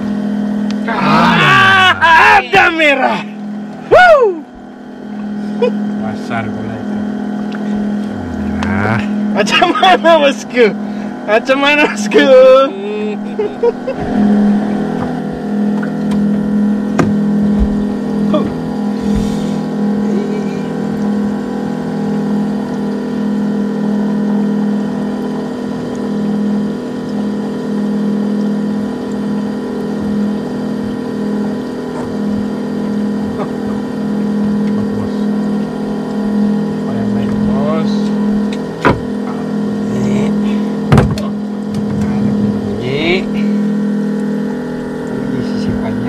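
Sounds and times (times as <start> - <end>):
small engine humming: 0.0 - 46.0
sharp knocks: 16.9 - 17.9, 40.9 - 41.9.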